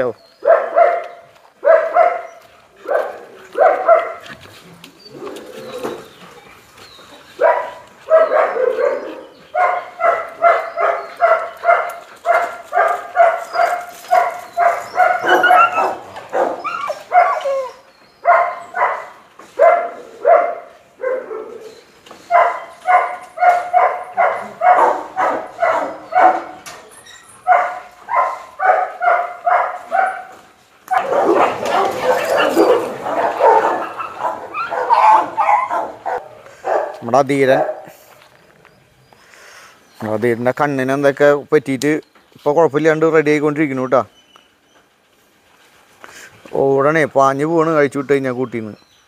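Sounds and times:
dog barking: 0.4s - 4.2s, 7.4s - 17.5s, 18.2s - 21.7s, 22.3s - 26.6s, 27.4s - 37.9s.

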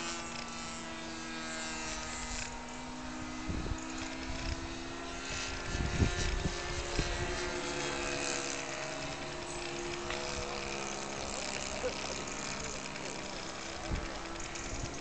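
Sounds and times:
model aircraft motor droning: 0.0s - 15.0s.

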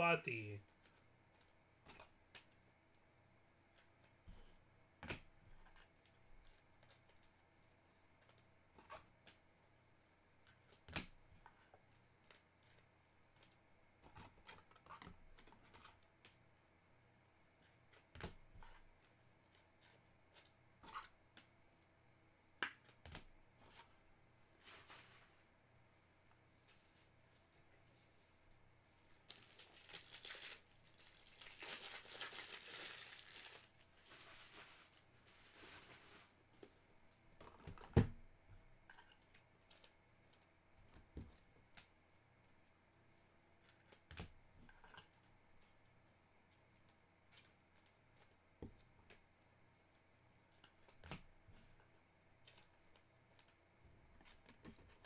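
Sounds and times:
packaging crinkling: 29.1s - 34.9s.

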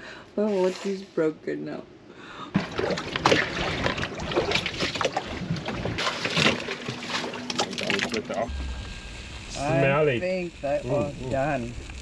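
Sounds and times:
water splashing around a boat: 2.6s - 8.5s.

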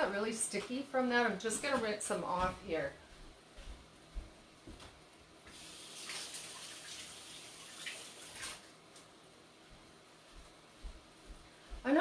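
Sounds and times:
tap water running over hands: 5.5s - 8.7s.

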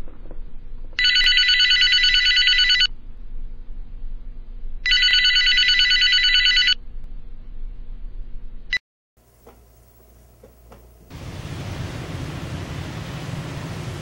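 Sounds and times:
telephone ringing: 1.0s - 2.9s, 4.9s - 6.8s.

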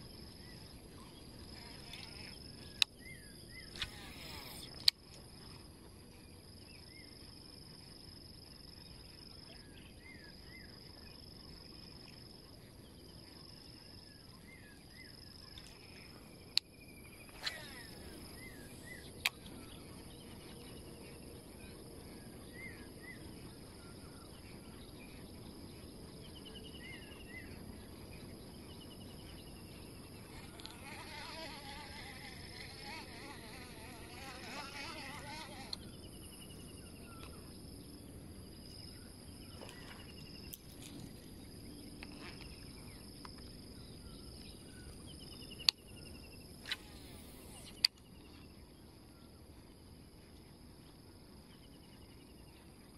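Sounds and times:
high-pitched insect drone: 0.0s - 5.6s, 17.1s - 23.2s, 28.8s - 43.2s.

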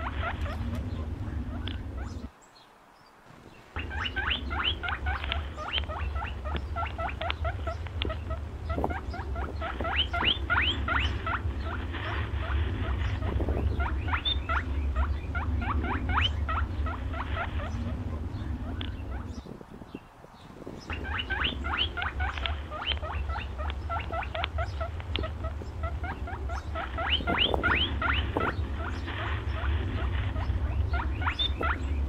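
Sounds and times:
steady low rumble: 0.0s - 2.5s, 3.4s - 32.0s
small birds chirping: 0.0s - 32.0s.

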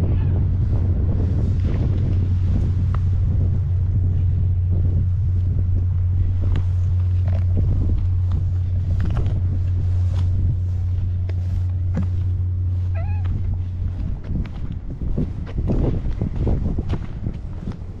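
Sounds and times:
steady low rumble: 0.0s - 18.0s
cat meowing: 12.9s - 13.5s.

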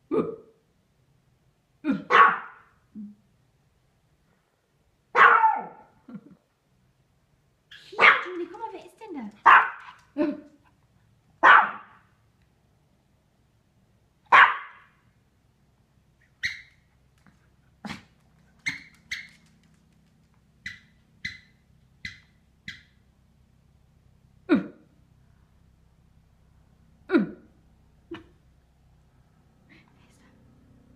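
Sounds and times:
dog barking: 1.9s - 2.7s, 5.1s - 6.0s, 7.7s - 8.4s, 9.4s - 10.4s, 11.4s - 12.1s, 14.3s - 15.0s
dog yipping: 2.1s - 2.6s, 5.2s - 5.9s, 7.7s - 8.4s, 9.4s - 10.4s, 11.4s - 12.0s, 14.3s - 14.8s, 16.2s - 16.8s, 18.6s - 19.5s, 20.6s - 23.0s.

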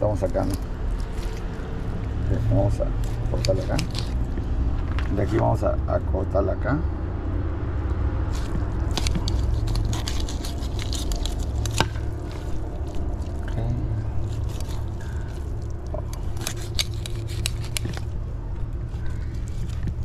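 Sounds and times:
steady low rumble: 0.0s - 20.0s
knife scraping and clicking on bones: 0.2s - 2.3s, 2.9s - 4.4s, 8.3s - 13.4s, 14.1s - 18.2s.

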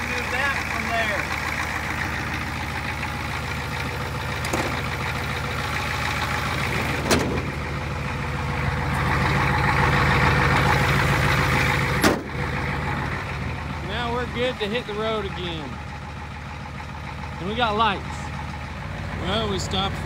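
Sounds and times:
diesel pickup engine running: 0.0s - 20.0s.

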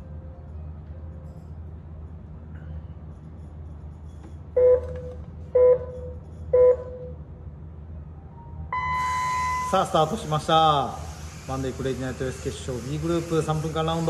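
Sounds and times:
low steady hum: 0.0s - 11.5s
countdown beeps: 5.6s - 7.1s, 8.7s - 10.0s.

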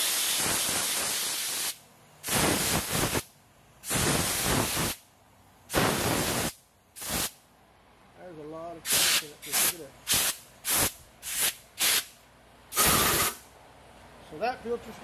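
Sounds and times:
compressed air blow gun hissing: 0.0s - 3.2s, 3.8s - 5.0s, 5.7s - 7.4s, 8.9s - 13.5s.

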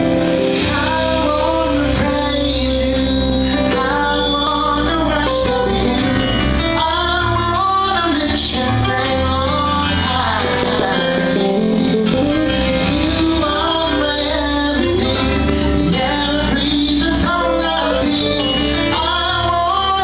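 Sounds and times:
backing vocalists: 0.0s - 20.0s
instrumental accompaniment: 0.0s - 20.0s
man singing into a microphone: 0.0s - 20.0s.

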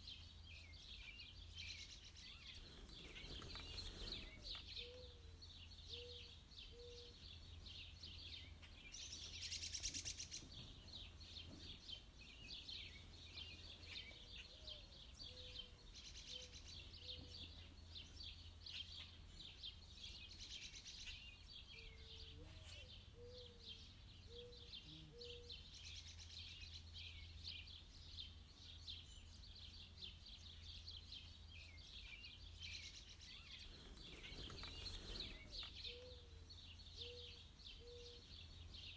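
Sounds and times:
rustle: 0.0s - 38.9s
high chirping bird calls: 0.6s - 27.7s, 29.0s - 38.9s.

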